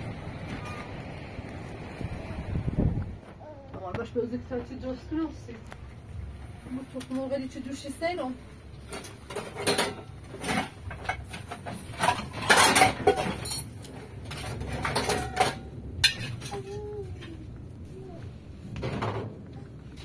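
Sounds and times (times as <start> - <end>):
kitchenware clattering and clinking: 8.8 - 16.8.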